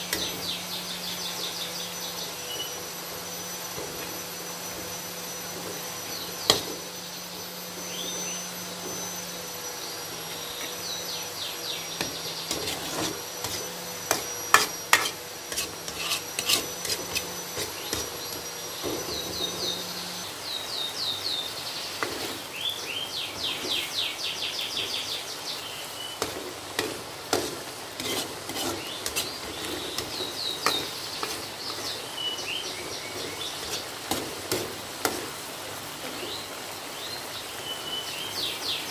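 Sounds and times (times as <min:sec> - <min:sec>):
metal spatula scraping a wok: 0:02.4 - 0:07.0, 0:12.0 - 0:20.0, 0:22.0 - 0:22.4, 0:26.2 - 0:35.4.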